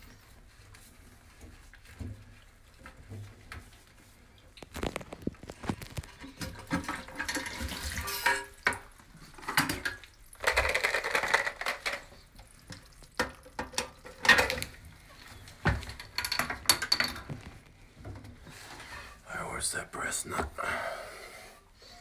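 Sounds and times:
toilet fill valve knocks and scraping: 6.2 - 19.1.

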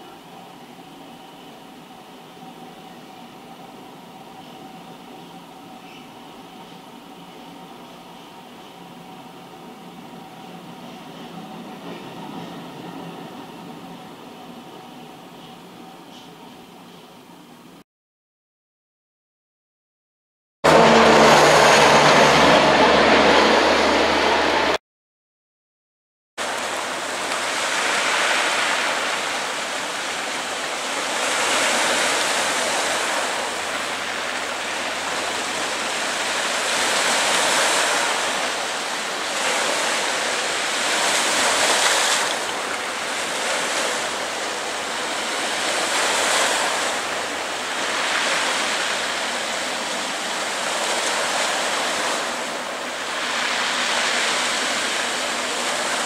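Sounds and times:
sea waves washing onto rocks: 26.4 - 56.0.

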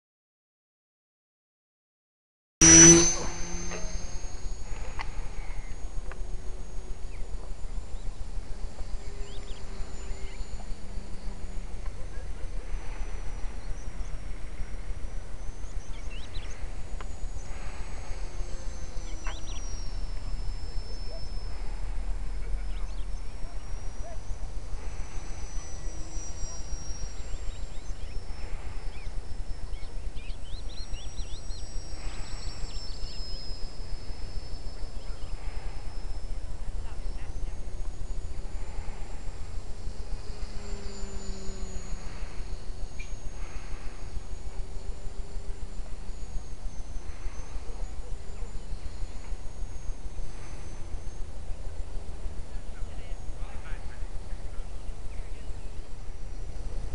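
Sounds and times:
low hum: 2.6 - 56.9
model plane engine whine: 2.6 - 56.9
bird chirps: 7.0 - 36.2.

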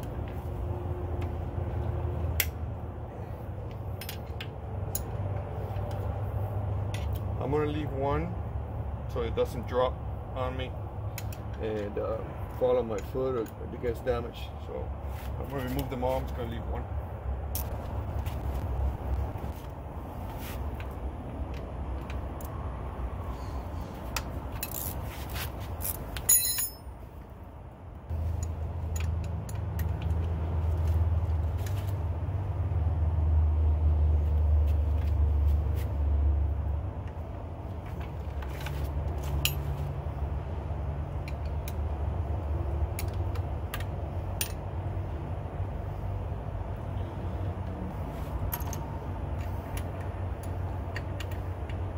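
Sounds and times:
steady low rumble: 0.0 - 51.9
metal wrench clinking and scraping: 3.7 - 5.2, 24.5 - 27.0, 38.4 - 39.9, 48.4 - 51.4.

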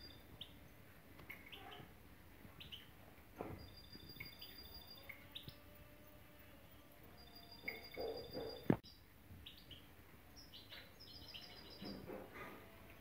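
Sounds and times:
goldfinches chirping and trilling: 3.6 - 12.0.

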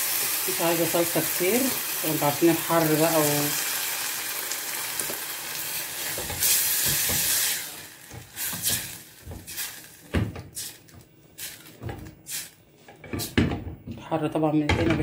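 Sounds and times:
sauce sizzling: 0.0 - 12.6.

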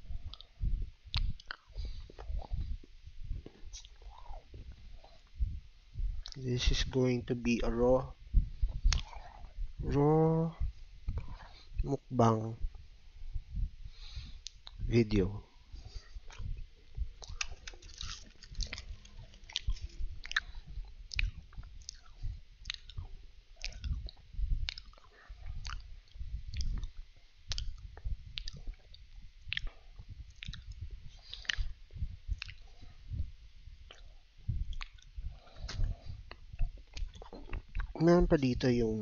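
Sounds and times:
cookies crunching while chewed: 17.2 - 25.9, 26.5 - 27.8, 28.4 - 31.7, 32.4 - 32.8, 33.9 - 38.0.

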